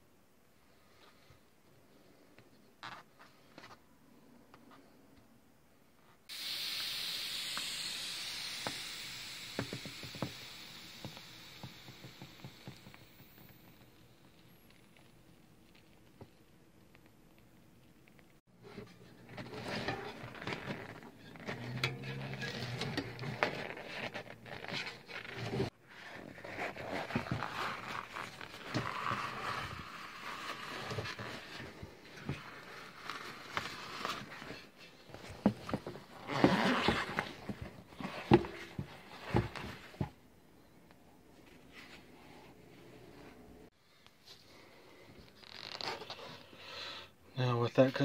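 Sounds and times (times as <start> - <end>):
tyre scraping against rim: 18.6 - 32.5, 33.6 - 40.1.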